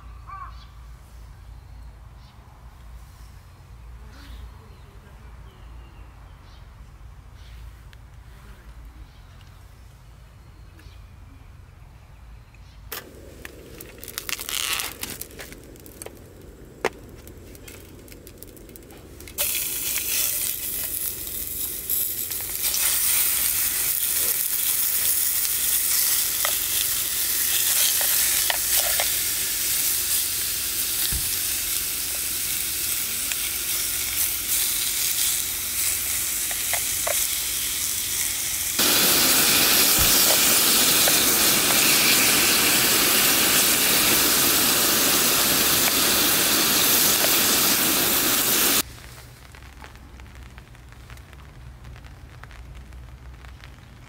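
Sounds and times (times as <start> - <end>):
meat sizzling in a pan: 19.4 - 48.9.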